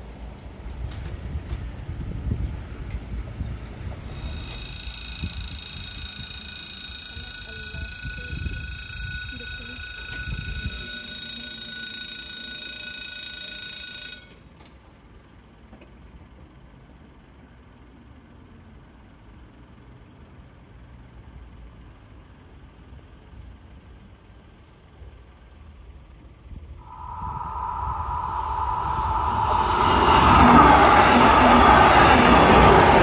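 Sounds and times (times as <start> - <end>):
level crossing bell ringing: 4.1 - 14.4.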